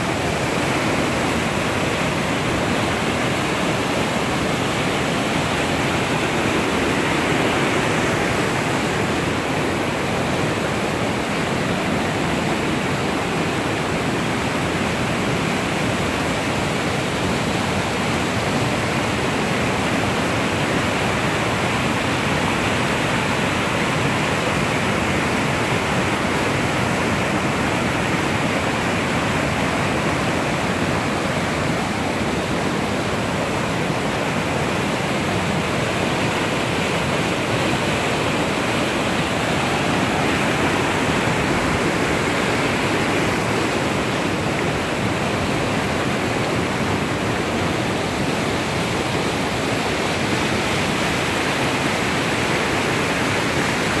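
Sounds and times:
river rushing over rocks: 0:00.0 - 0:54.0.

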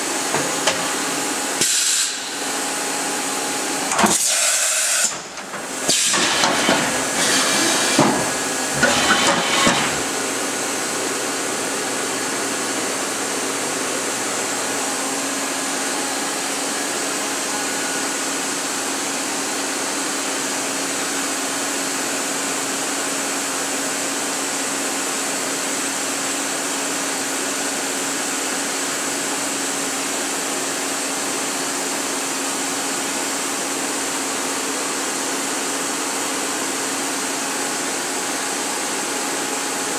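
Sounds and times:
machine hiss: 0:00.8 - 0:02.4, 0:03.9 - 0:10.1
irregular mechanical noise: 0:03.8 - 0:10.2.

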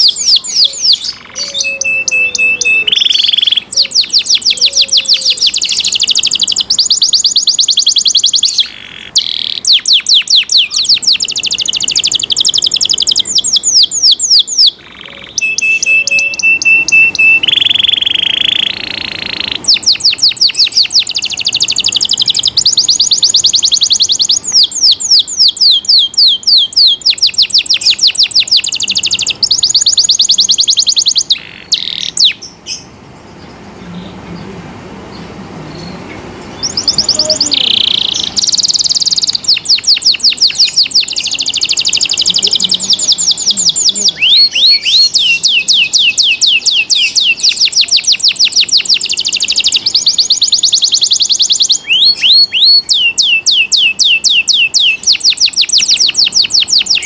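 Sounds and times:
canary singing: 0:00.0 - 0:57.0.

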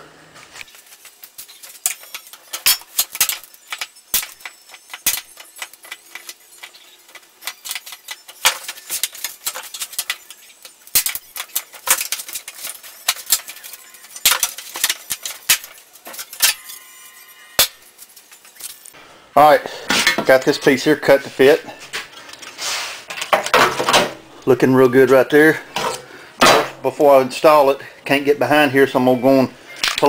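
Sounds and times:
sheet metal clinking: 0:00.8 - 0:16.9.

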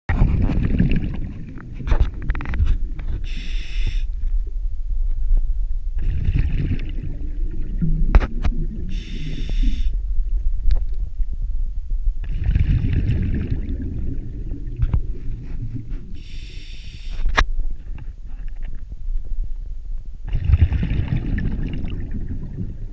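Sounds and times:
bubbles gurgling underwater: 0:00.1 - 0:03.0, 0:06.0 - 0:10.0, 0:12.2 - 0:16.2, 0:20.3 - 0:22.9
regulator hissing inhalation: 0:03.2 - 0:04.1, 0:08.9 - 0:10.0, 0:16.2 - 0:17.3.

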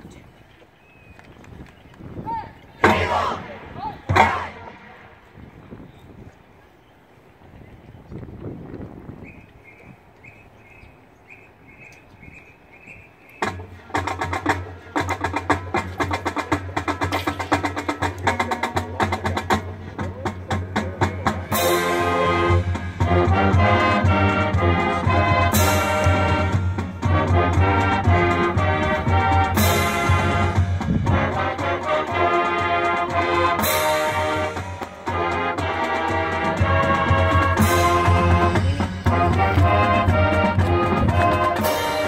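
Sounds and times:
marching band playing: 0:02.8 - 0:05.4, 0:12.6 - 0:42.0
drum and mallet strokes: 0:13.4 - 0:42.0.

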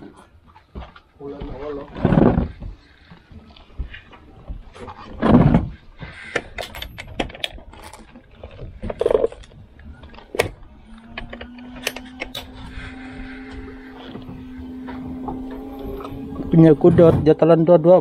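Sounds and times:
rustling thumps: 0:00.2 - 0:17.4
fishing gear knocks and clatter: 0:01.9 - 0:16.6
electric fishing reel hum: 0:10.9 - 0:16.7.

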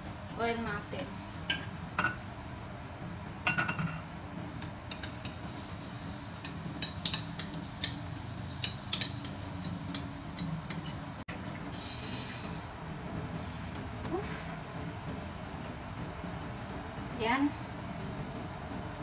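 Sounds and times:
dishes and utensils clinking: 0:03.5 - 0:04.1, 0:06.4 - 0:11.2.

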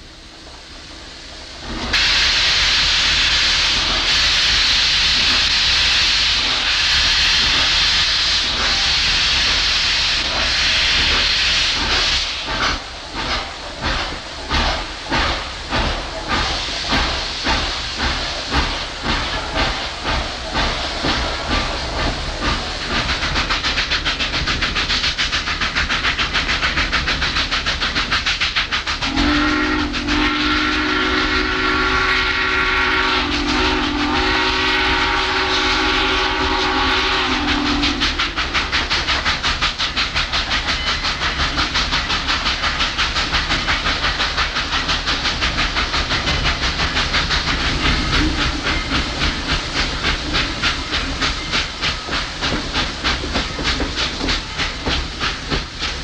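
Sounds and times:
steam locomotive exhaust beats: 0:00.0 - 0:56.0
steam whistle blast: 0:29.0 - 0:38.2.

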